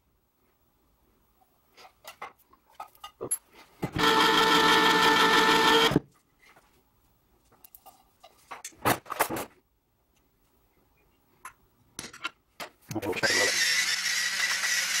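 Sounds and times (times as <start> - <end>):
electric can opener whirring: 3.9 - 6.0, 13.2 - 15.0.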